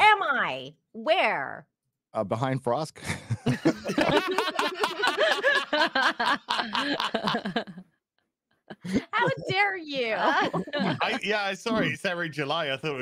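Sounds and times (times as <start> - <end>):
people laughing: 3.0 - 7.9, 8.7 - 12.1.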